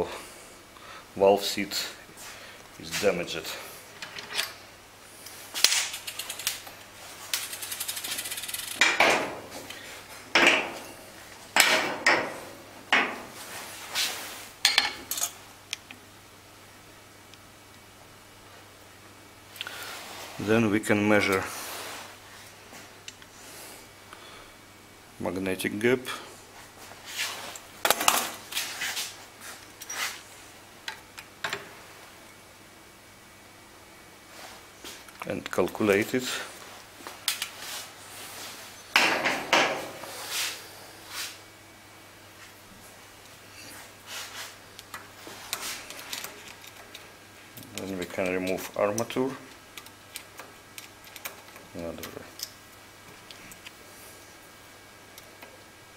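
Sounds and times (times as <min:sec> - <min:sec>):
metal parts clinking: 0:07.3 - 0:09.0
soft scrapes and rustles: 0:13.4 - 0:14.5, 0:19.8 - 0:20.5, 0:21.4 - 0:22.9, 0:26.6 - 0:27.6, 0:28.4 - 0:30.2, 0:36.4 - 0:38.9, 0:40.1 - 0:41.4, 0:43.6 - 0:44.6.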